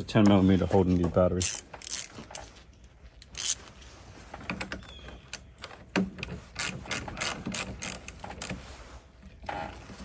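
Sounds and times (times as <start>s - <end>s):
socket ratchet clicking: 1.4s - 2.1s, 3.2s - 3.6s, 6.6s - 8.2s.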